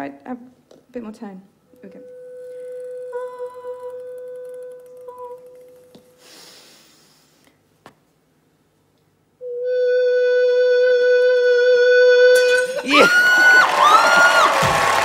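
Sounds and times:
woman singing one steady note: 1.9s - 5.5s
soft hiss: 4.6s - 9.4s.

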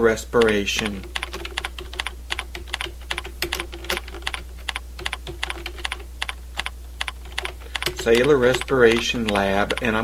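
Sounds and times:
steady low hum: 0.0s - 10.0s
keyboard keys clicking: 0.4s - 10.0s.

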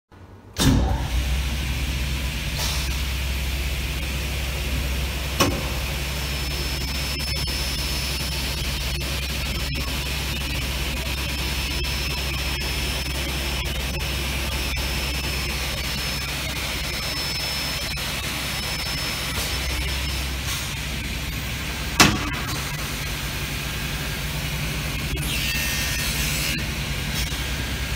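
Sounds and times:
machine motor hum: 0.3s - 27.9s
sharp click: 5.4s - 5.7s.

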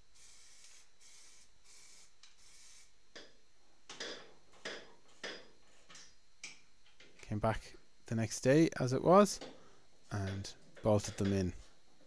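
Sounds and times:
aerosol can spraying: 0.2s - 2.9s.

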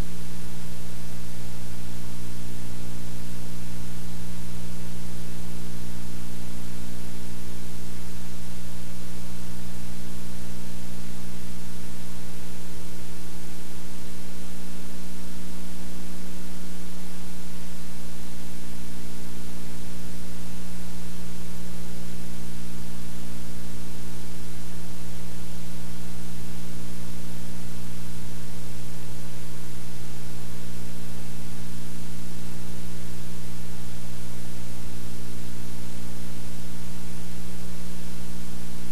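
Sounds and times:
low electrical hum: 0.0s - 38.9s.

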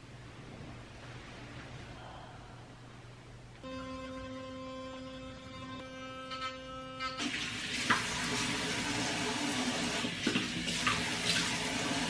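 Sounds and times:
electric toothbrush buzzing: 3.6s - 10.1s.

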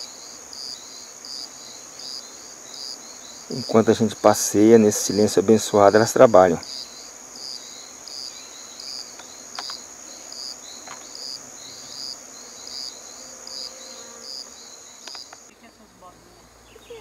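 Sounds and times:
high-pitched insect trill: 0.0s - 15.8s
insect chirps: 0.0s - 17.0s
faint clicks: 9.1s - 9.8s, 15.0s - 15.6s.

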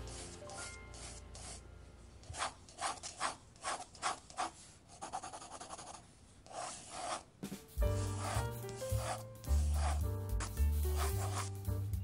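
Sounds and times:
scratchy swishing percussion: 7.4s - 11.8s.

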